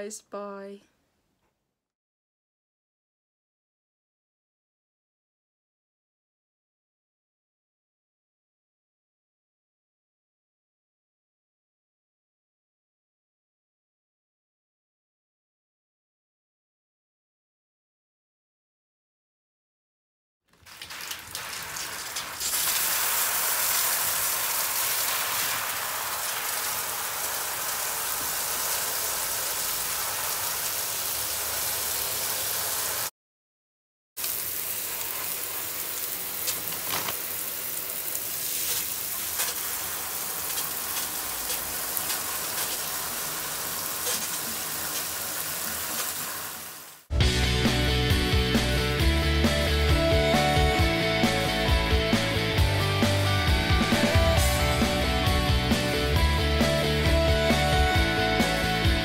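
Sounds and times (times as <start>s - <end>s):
water splashing in a basin: 20.5s - 33.1s, 34.2s - 47.1s
music: 47.1s - 59.0s.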